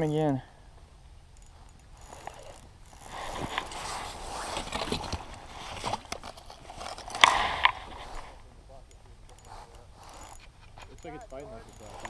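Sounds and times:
gear rustling and scraping on ice: 1.4s - 8.4s
camera handling noise: 3.1s - 8.4s.

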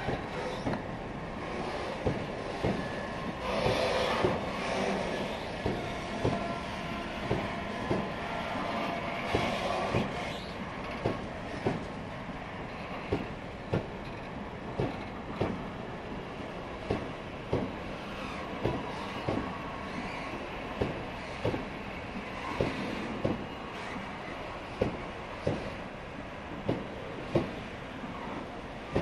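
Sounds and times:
train wheels clacking over rail joint: 0.0s - 0.9s, 1.5s - 8.1s, 8.8s - 12.0s, 12.7s - 15.6s, 16.8s - 21.8s, 22.5s - 24.1s, 24.7s - 25.8s, 26.6s - 27.6s
rumble of wheels on rail: 0.0s - 29.0s.

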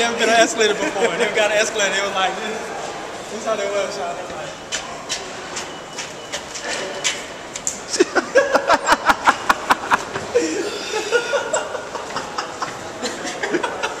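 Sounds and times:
hearty laughter: 7.9s - 14.0s.

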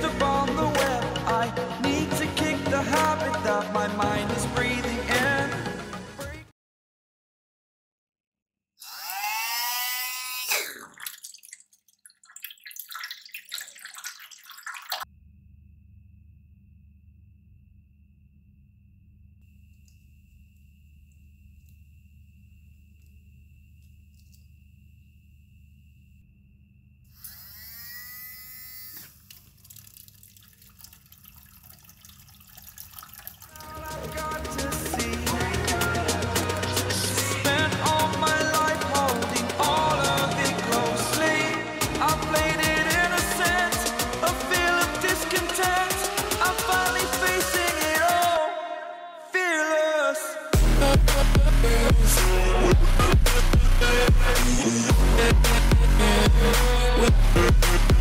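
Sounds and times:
music: 0.0s - 6.5s, 33.6s - 48.4s, 50.6s - 58.0s
water splashing into a tub: 10.5s - 15.1s, 29.1s - 35.8s
faint low hum: 15.2s - 27.1s
small motor whining: 27.1s - 29.2s.

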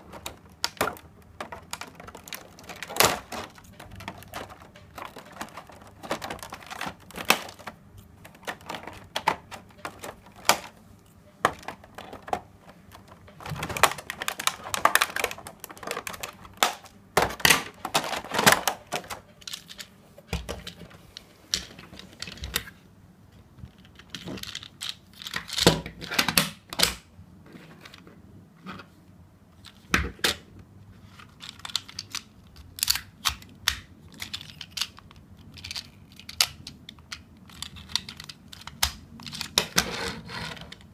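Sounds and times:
plastic tray crinkling: 0.0s - 22.6s
hard plastic clicks and snaps: 31.4s - 39.8s.

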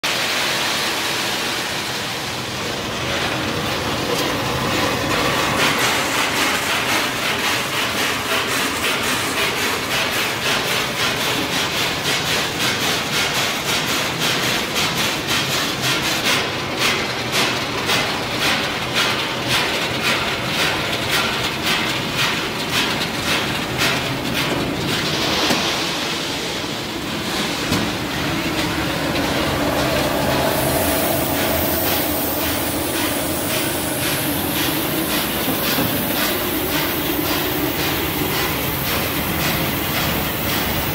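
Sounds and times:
regular machine clatter: 3.1s - 26.6s.

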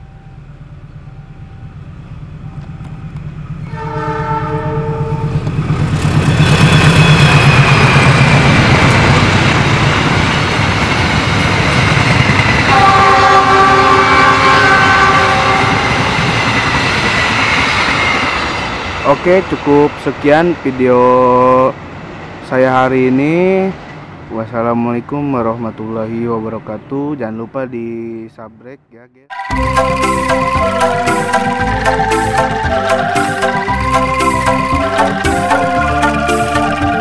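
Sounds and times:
diesel locomotive engine hum: 0.0s - 28.6s, 29.5s - 37.0s
train horn: 3.6s - 5.6s, 12.7s - 16.2s.

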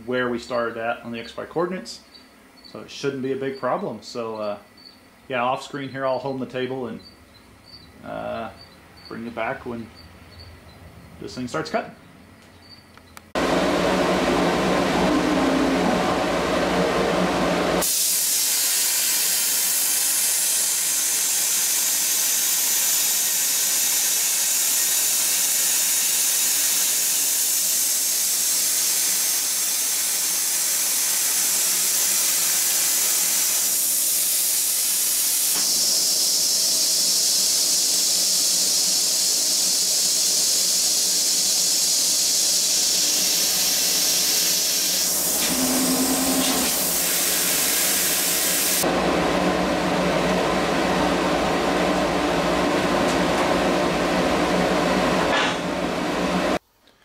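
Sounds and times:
plasma torch arc hissing: 17.8s - 48.9s.

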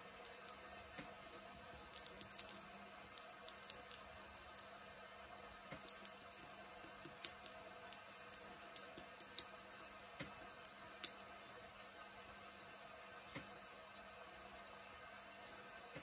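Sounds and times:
sharp irregular clicks: 1.9s - 4.7s, 5.8s - 6.2s, 6.8s - 11.2s.

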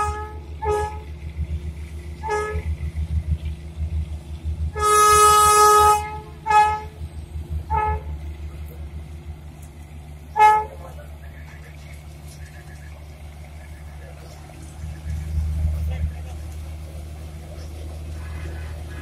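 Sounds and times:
steam locomotive whistle: 0.0s - 1.1s, 2.2s - 2.7s, 4.7s - 7.0s, 7.7s - 8.2s
train running rumble: 0.0s - 19.0s.

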